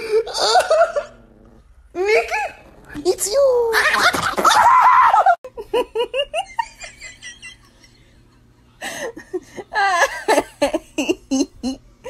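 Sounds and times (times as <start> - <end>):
person giggling: 0.0 - 1.2, 5.2 - 8.1, 8.8 - 11.8.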